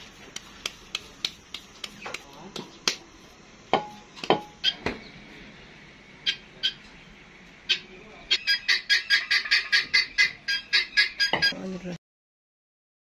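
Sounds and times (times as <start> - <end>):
dough slapped between hands: 0.3 - 3.0
bird chirping rapidly: 6.2 - 6.8, 7.7 - 11.6.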